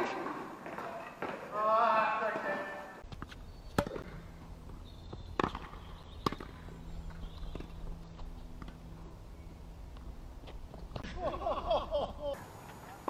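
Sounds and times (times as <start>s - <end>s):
ball bouncing on hard court: 3.1s - 4.2s, 5.1s - 7.8s
tennis racket hitting ball: 5.4s - 6.6s.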